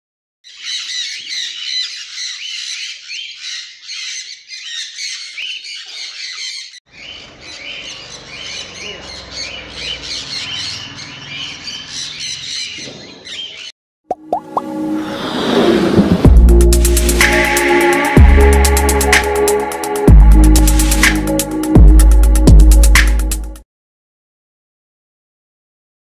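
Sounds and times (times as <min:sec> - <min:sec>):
parrots squawking and screeching: 0:00.5 - 0:13.7.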